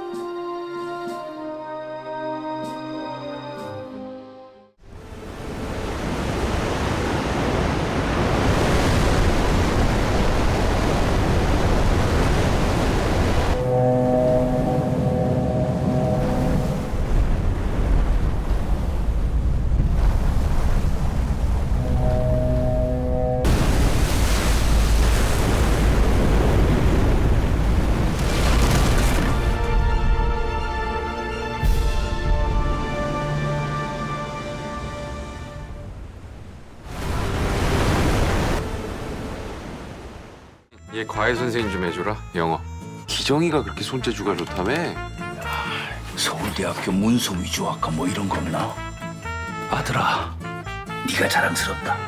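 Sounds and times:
orchestral music: 0:00.0 - 0:04.8, 0:13.5 - 0:17.5, 0:21.7 - 0:23.8, 0:29.1 - 0:36.1, 0:40.8 - 0:52.0
sea surf churning: 0:04.9 - 0:40.7.

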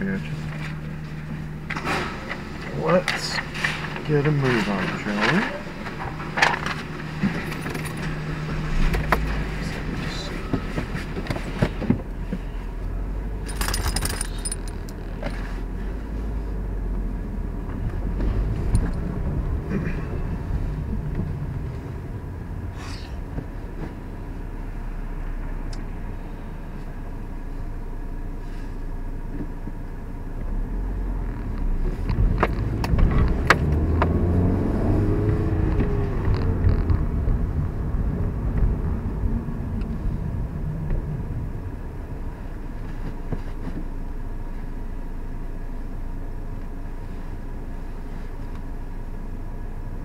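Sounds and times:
car engine and road noise: 0:00.0 - 0:50.0
metallic jangle: 0:13.4 - 0:14.9.

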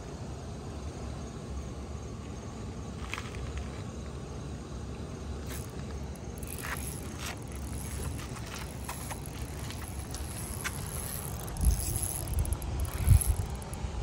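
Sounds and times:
faint reel clicks: 0:05.5 - 0:05.8, 0:06.4 - 0:13.8.

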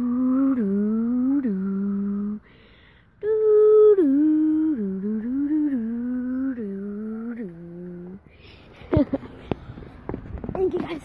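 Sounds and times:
person humming a tune: 0:00.0 - 0:02.5, 0:03.2 - 0:08.6.

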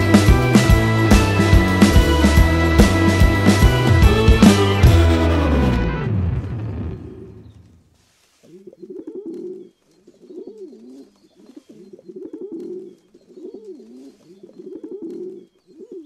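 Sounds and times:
pigeons cooing: 0:08.5 - 0:16.0.

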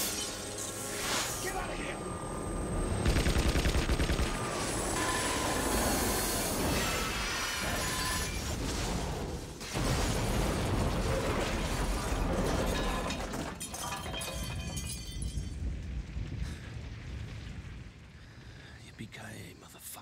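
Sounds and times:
electrical sparking and crackling: 0:00.0 - 0:02.0, 0:03.0 - 0:12.4
large explosion: 0:08.4 - 0:13.0, 0:15.3 - 0:18.7.

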